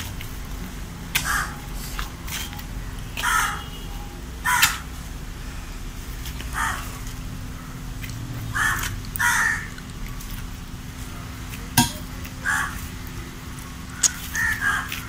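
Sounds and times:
hoe striking ground: 11.8 - 12.2
bird calling: 13.9 - 15.0.

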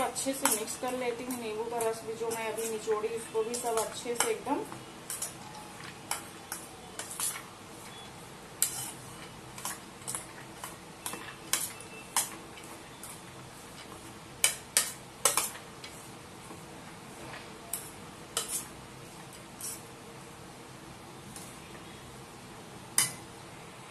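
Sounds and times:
spoon clinking against metal bowl: 0.2 - 4.5, 5.1 - 5.5, 11.0 - 12.4.

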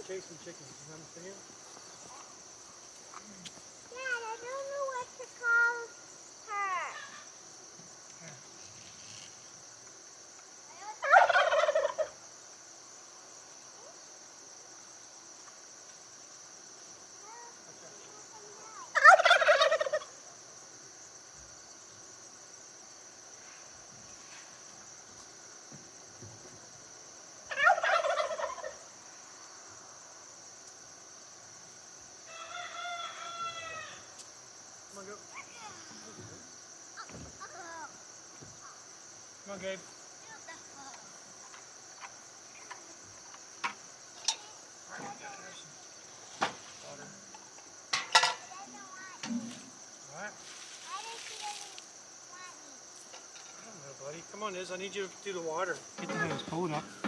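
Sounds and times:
turkey gobbling: 11.0 - 12.2, 18.9 - 20.2, 27.5 - 28.9.

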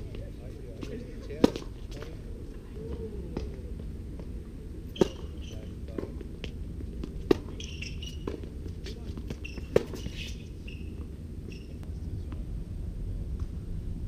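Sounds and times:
tennis ball bounces: 0.8 - 2.0, 4.9 - 11.7
racket hitting tennis ball: 1.4 - 2.0, 4.9 - 6.2, 7.0 - 10.9.

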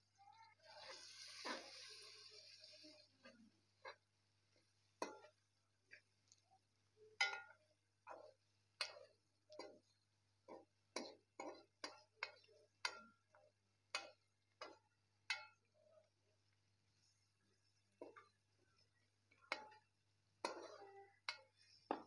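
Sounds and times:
metal spoon scraping a pot: 19.5 - 22.0.

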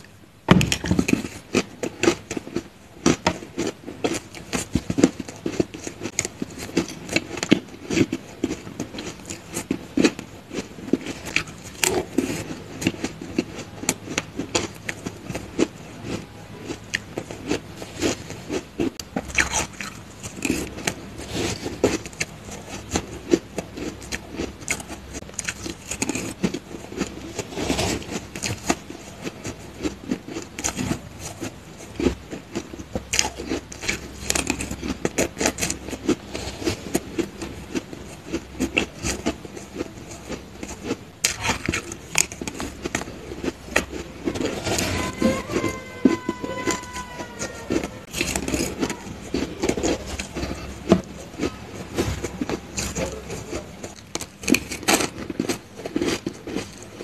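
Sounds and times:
crunching and chewing ice: 0.0 - 57.0
metal spoon scraping ice: 41.3 - 51.1.

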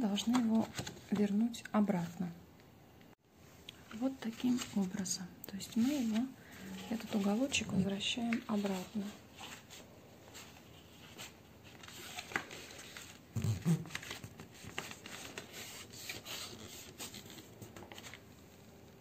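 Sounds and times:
paper rustling and rubbing: 5.7 - 18.3.

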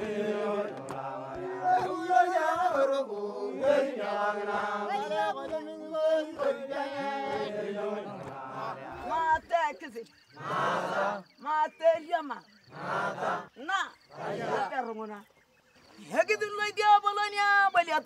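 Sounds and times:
group of people chanting: 0.0 - 14.9.

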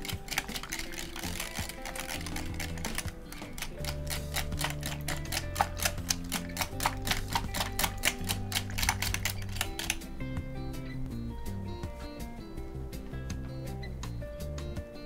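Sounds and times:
whisk clicking against glass bowl: 0.0 - 10.0
background music with low notes: 0.0 - 15.0.

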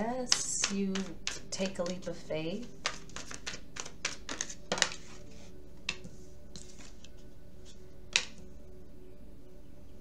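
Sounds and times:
faint background music: 0.0 - 10.0
cards tapping on a table: 0.3 - 2.0, 2.8 - 5.0, 8.1 - 8.4.

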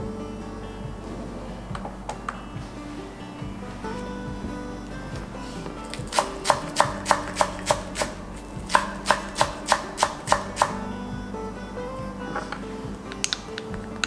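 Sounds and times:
soft background music: 0.0 - 14.0
knife chopping on wooden board: 5.9 - 10.8.

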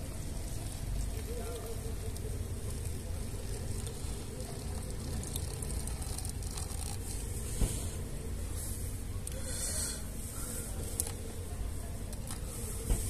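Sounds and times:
water pouring and splashing into cup: 0.0 - 7.8.

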